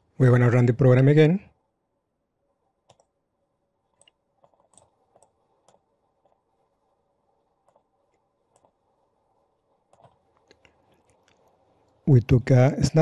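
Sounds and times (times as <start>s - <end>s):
computer mouse clicks: 2.8s - 3.2s, 3.9s - 6.4s, 7.6s - 8.8s, 9.9s - 12.0s.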